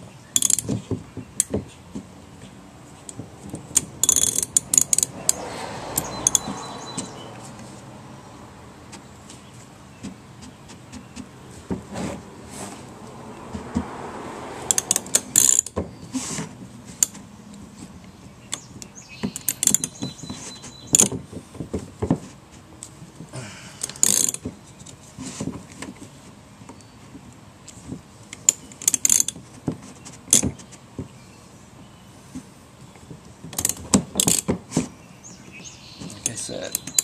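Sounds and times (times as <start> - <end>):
sharp metal knocks: 3.1 - 7.2, 14.6 - 16.0
socket ratchet clicking: 3.7 - 5.1.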